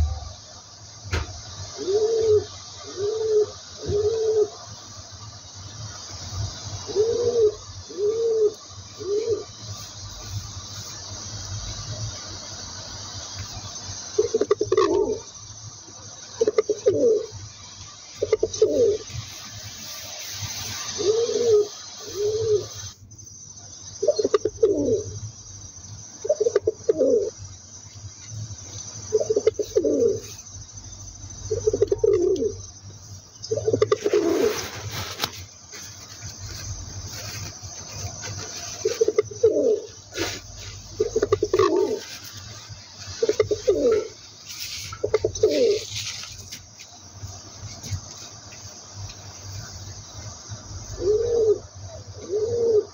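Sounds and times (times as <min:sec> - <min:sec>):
pigeon cooing: 0:01.8 - 0:04.6, 0:06.8 - 0:09.5, 0:14.2 - 0:15.3, 0:16.4 - 0:17.3, 0:18.2 - 0:19.1, 0:20.8 - 0:22.9, 0:24.0 - 0:25.2, 0:26.3 - 0:27.4, 0:29.2 - 0:30.4, 0:31.5 - 0:32.6, 0:38.5 - 0:42.2, 0:43.1 - 0:46.0, 0:50.9 - 0:52.9.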